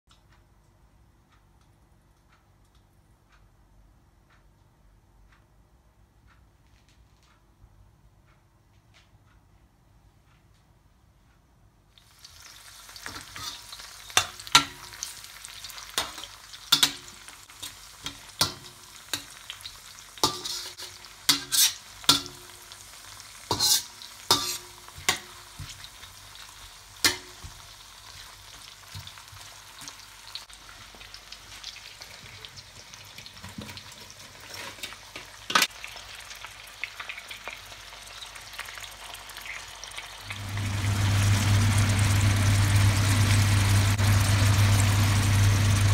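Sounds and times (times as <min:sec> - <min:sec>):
food sizzling in oil: 0:12.0 - 0:45.9
metal spoon scraping pan: 0:13.0 - 0:15.1, 0:20.2 - 0:22.5, 0:23.5 - 0:25.9
low hum: 0:40.3 - 0:45.9.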